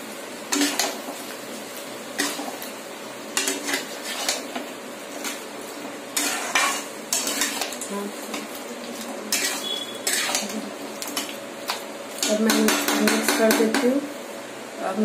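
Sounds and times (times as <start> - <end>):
frying sizzle: 0.0 - 15.0
metal spoon scraping a pan: 0.5 - 1.0, 2.2 - 2.6, 3.3 - 13.8.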